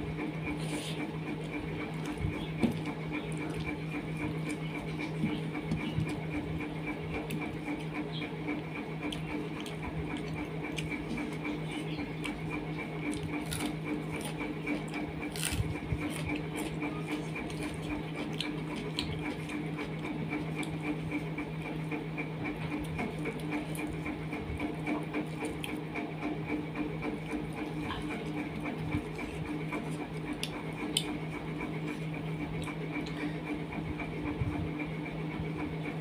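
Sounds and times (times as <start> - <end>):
eating rice by hand: 0.0 - 36.0
steady pulsing mechanical hum: 0.0 - 36.0.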